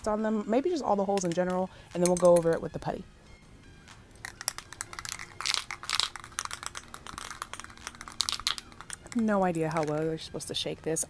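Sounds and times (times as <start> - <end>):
spray can ball rattling: 4.2 - 10.2.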